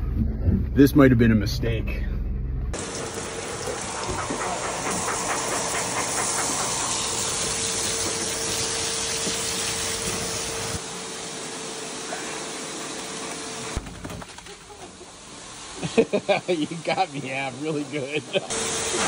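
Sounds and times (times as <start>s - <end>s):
hose water spraying: 2.8s - 13.8s, 14.6s - 19.0s.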